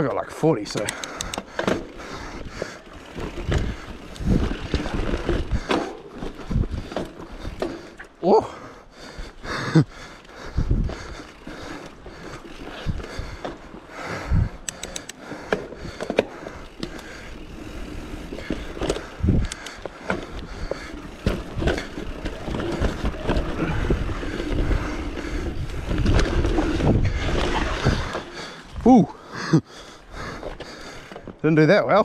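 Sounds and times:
bike rattling over bumps: 0.3s - 31.9s
tyres rolling over dirt: 1.5s - 8.2s, 15.3s - 29.1s
wind rumble on microphone: 3.3s - 7.0s, 10.5s - 11.2s, 19.0s - 19.6s, 21.3s - 28.9s.

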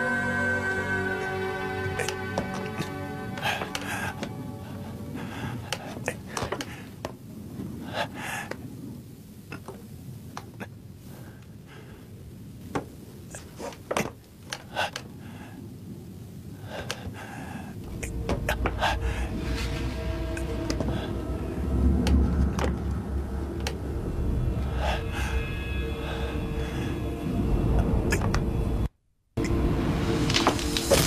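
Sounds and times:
man gasping and breathing hard: 1.3s - 7.0s, 16.6s - 19.7s
low rumble: 15.9s - 31.0s.

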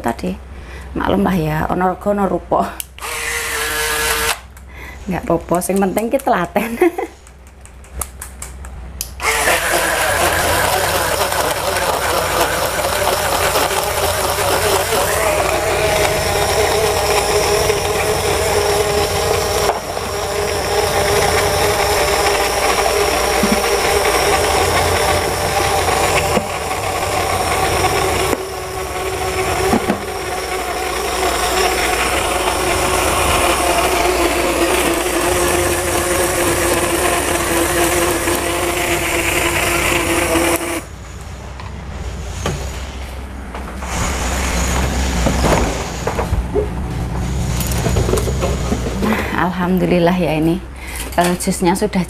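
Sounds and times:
blender motor churning fruit: 3.0s - 4.5s, 9.0s - 40.9s.

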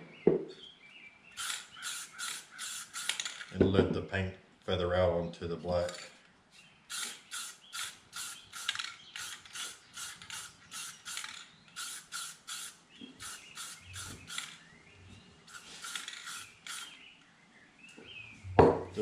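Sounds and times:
spray paint can rattling: 1.4s - 3.6s, 6.9s - 14.6s, 15.5s - 17.0s.

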